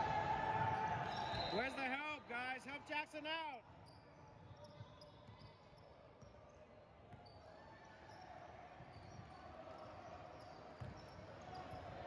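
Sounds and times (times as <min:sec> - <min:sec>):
sneaker squeaks: 0:07.1 - 0:11.9.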